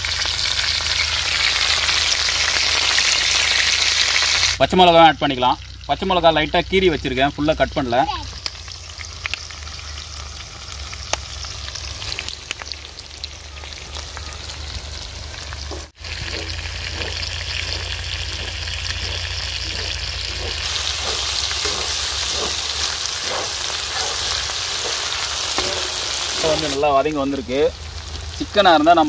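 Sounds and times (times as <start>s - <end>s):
meat sizzling in oil: 0.0s - 4.6s, 5.2s - 29.0s
spatula scraping a pan: 15.7s - 26.8s.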